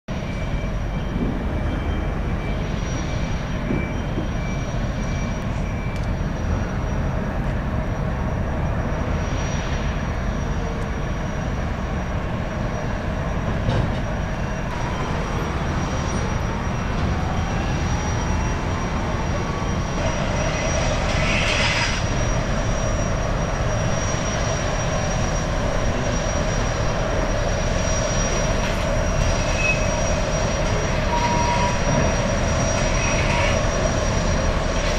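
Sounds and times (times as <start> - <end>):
thin high whine: 0.1 - 34.9
jetfoil rumble: 0.2 - 34.9.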